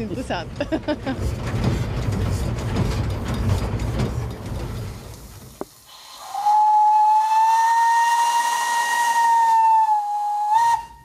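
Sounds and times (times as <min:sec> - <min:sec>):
steam hiss: 0:04.0 - 0:10.8
steam locomotive whistle: 0:05.9 - 0:11.0.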